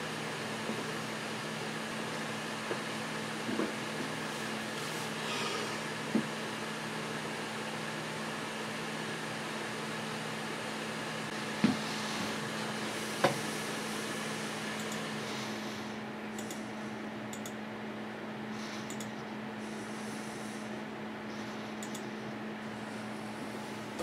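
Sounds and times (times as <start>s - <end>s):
computer fan hum: 0.0s - 24.0s
sharp clicks: 16.4s - 16.6s, 17.3s - 17.6s, 18.8s - 19.2s, 21.8s - 22.1s.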